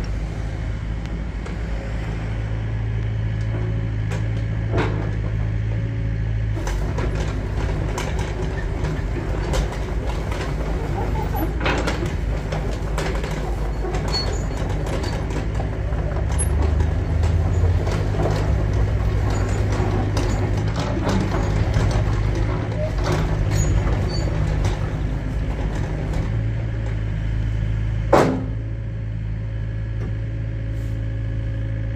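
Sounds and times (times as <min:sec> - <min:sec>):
diesel engine running: 0:00.0 - 0:31.9
undercarriage knocks and clanks: 0:03.4 - 0:27.4, 0:28.0 - 0:28.8.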